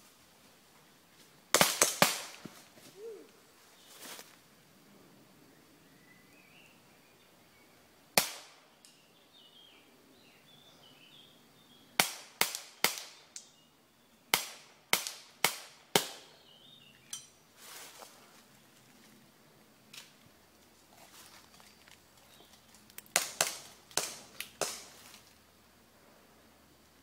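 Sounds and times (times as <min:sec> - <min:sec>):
airsoft gun shots cracking: 0:01.5 - 0:02.4, 0:08.2 - 0:08.7, 0:12.0 - 0:13.2, 0:14.3 - 0:16.3, 0:23.1 - 0:25.0.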